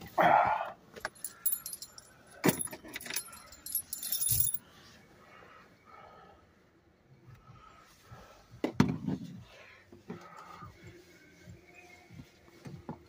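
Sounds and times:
light metallic jingling: 1.0s - 4.6s.

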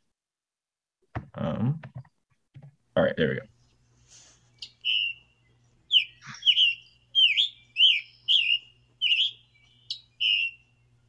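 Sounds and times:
bird singing burry phrases: 4.5s - 11.0s.

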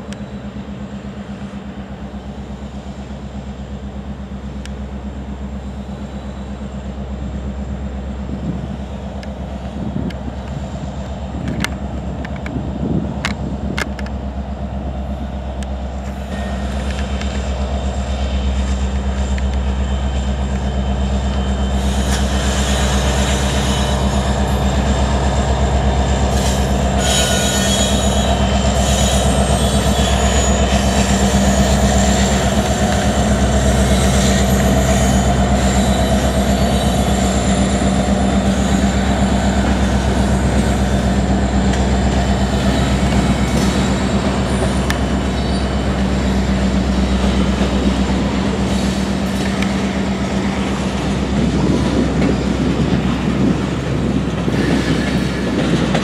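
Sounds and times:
low diesel drone: 0.0s - 56.0s
train wheels clicking over rail joints: 0.0s - 56.0s
wheels squealing against rails: 15.0s - 56.0s.

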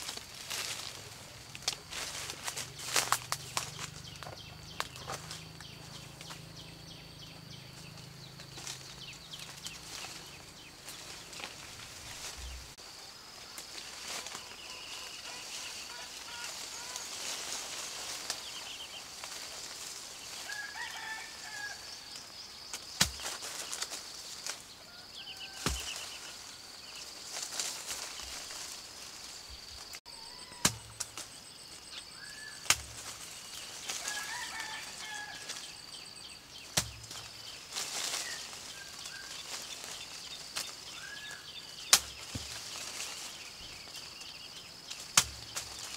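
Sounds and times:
leaves and branches rustling: 0.0s - 45.9s
birds chirping: 0.9s - 45.9s
fruit snapping off branches: 22.7s - 24.6s, 25.6s - 26.1s, 30.6s - 31.3s, 32.6s - 33.2s, 36.7s - 37.3s, 41.9s - 42.8s, 45.0s - 45.9s.

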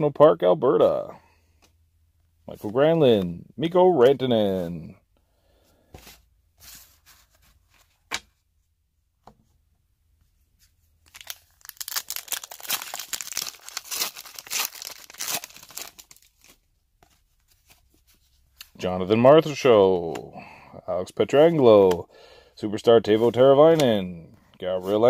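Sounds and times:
foil wrapper tearing and crinkling: 11.1s - 16.5s.

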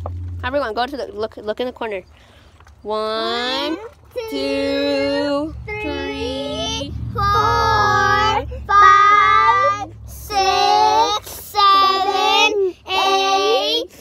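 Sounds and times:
children counting aloud: 3.4s - 14.0s.

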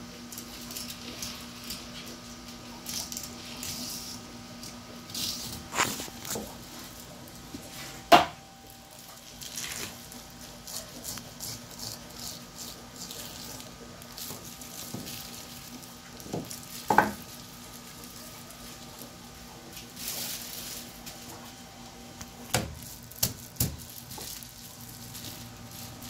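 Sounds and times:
faint steady hum: 0.0s - 26.0s
knocks on cutting board: 8.1s - 8.4s, 16.4s - 17.2s
knife scraping along fish bone: 9.5s - 15.5s.

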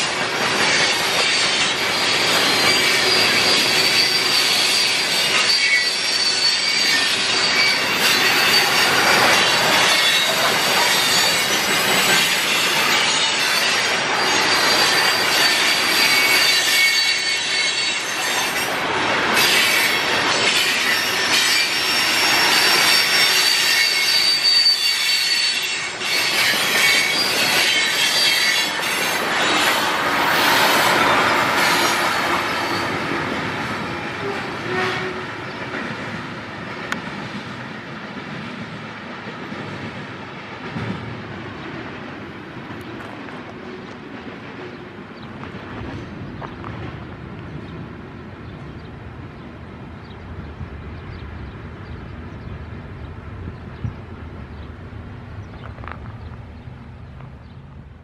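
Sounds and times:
train wheels squealing: 0.0s - 33.4s.

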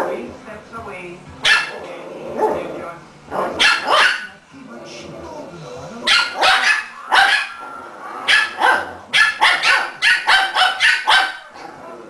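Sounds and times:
puppies barking: 1.4s - 2.7s, 3.3s - 4.4s, 6.1s - 11.6s.

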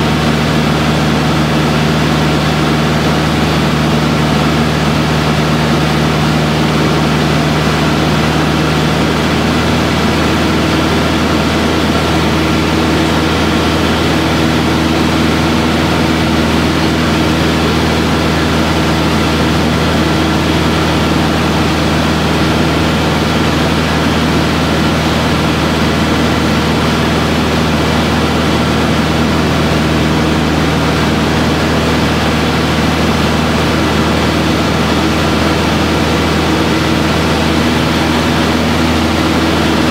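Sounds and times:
light plane engine and propeller: 0.0s - 39.9s.

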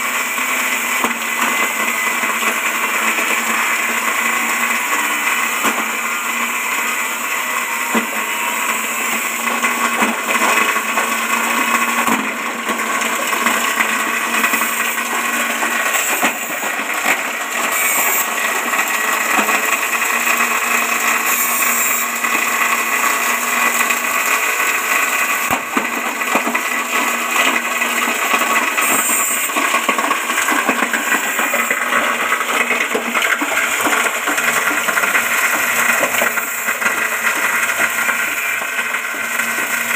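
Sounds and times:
grass chopper whirring grind: 0.0s - 39.9s.

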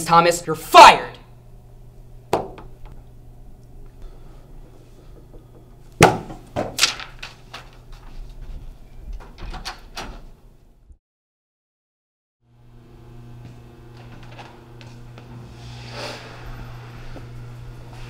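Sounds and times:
scrape: 15.4s - 17.4s.

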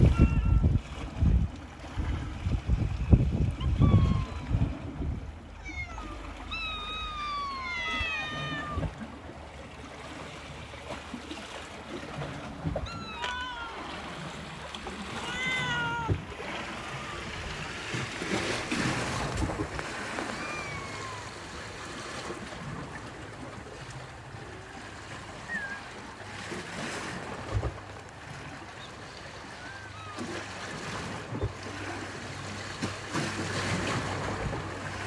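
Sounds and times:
kitten meowing: 0.0s - 0.7s, 3.6s - 4.5s, 5.6s - 9.0s, 12.8s - 13.9s, 15.1s - 16.2s, 20.3s - 21.4s
sea waves washing on rocks: 0.0s - 35.0s.

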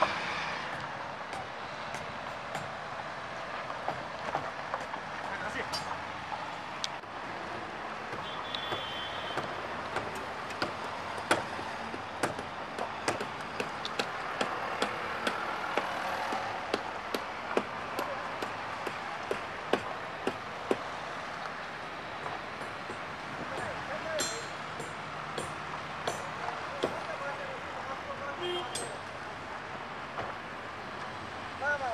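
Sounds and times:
distant highway traffic rush: 0.0s - 31.9s.

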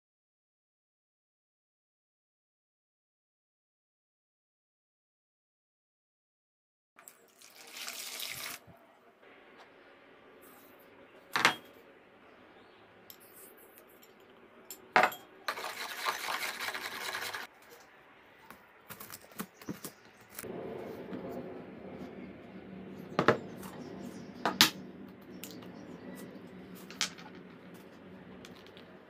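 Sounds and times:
pouring and mixing noise: 7.0s - 11.1s, 15.4s - 17.8s, 20.4s - 29.0s.

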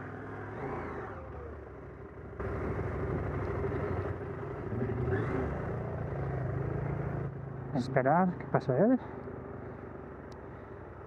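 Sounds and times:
motorcycle engine running: 0.4s - 8.0s.

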